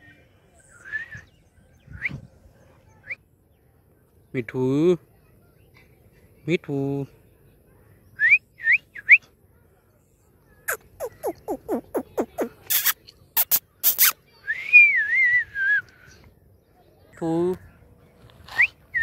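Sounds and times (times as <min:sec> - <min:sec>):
parakeet chirping and screeching: 0:10.7 - 0:14.1.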